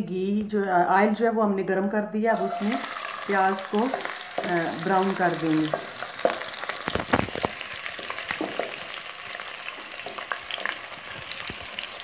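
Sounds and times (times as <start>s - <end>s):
onions sizzling in hot oil: 2.3s - 12.0s
wooden spoon scraping pot: 2.4s - 9.0s.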